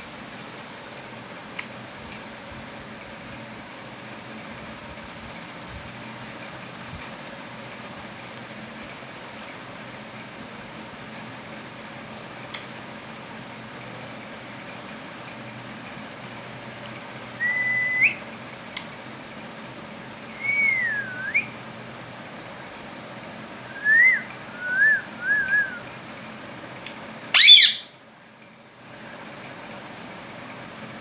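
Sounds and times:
parakeet whistling: 20.3s - 21.5s, 27.3s - 27.9s
parakeet squawk: 27.3s - 27.9s.

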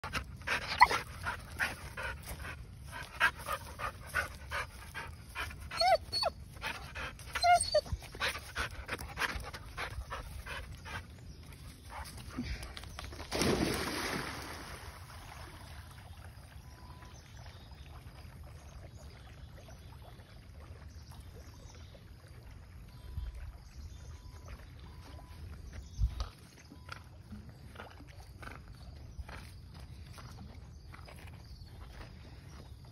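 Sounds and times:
dog whimpering: 5.7s - 6.3s, 6.9s - 8.4s
dog splashing into river: 12.7s - 16.6s.

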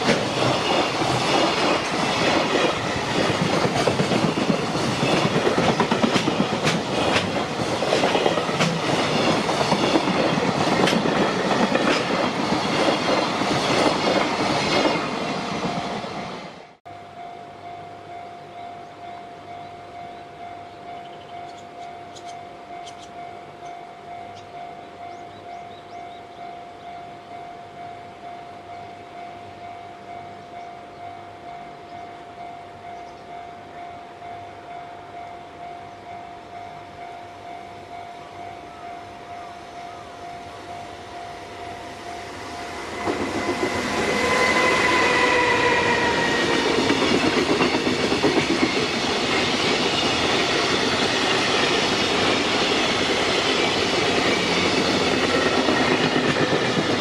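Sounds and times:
clickety-clack of wagons rolling: 0.0s - 15.8s, 46.1s - 57.0s
electric locomotive passing: 0.0s - 57.0s.

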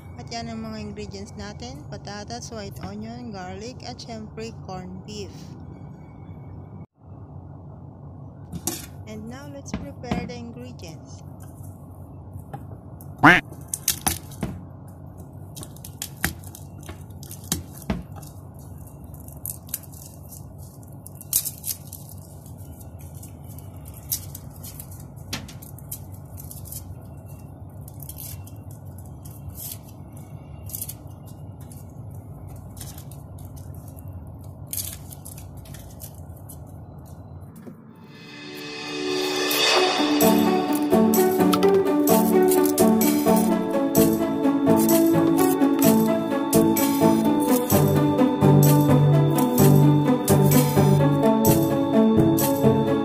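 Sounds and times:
music: 37.9s - 53.0s.

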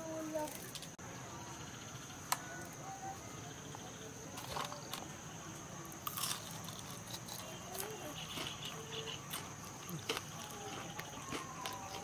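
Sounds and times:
crickets chirring: 0.0s - 12.0s
crunchy bite into fried food: 6.0s - 7.9s.

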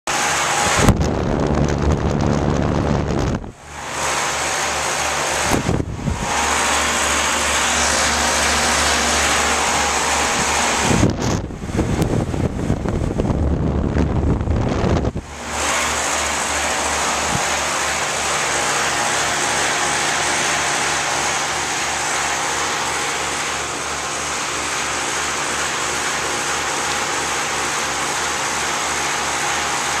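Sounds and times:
air conditioner fan whoosh: 0.1s - 30.0s
low pulsing hum: 0.1s - 30.0s
wind buffeting microphone: 0.3s - 4.2s, 5.1s - 20.4s.

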